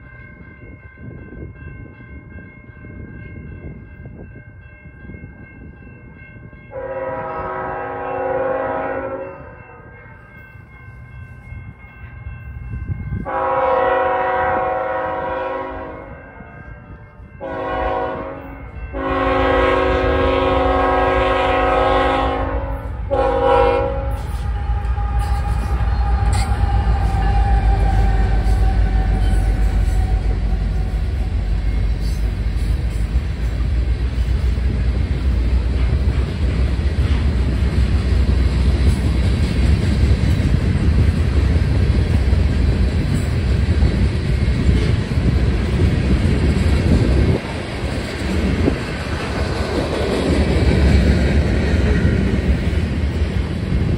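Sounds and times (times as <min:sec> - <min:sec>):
train passing with heavy rumble: 0:00.0 - 0:53.9
train air horn blasts: 0:06.7 - 0:10.4, 0:13.2 - 0:31.6
wheels clattering on rail: 0:24.0 - 0:53.9.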